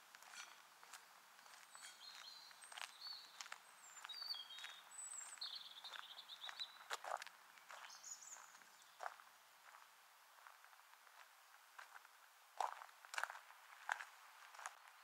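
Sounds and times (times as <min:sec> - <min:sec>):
footsteps of person walking: 0:00.0 - 0:15.0
small birds chirping: 0:00.2 - 0:09.9.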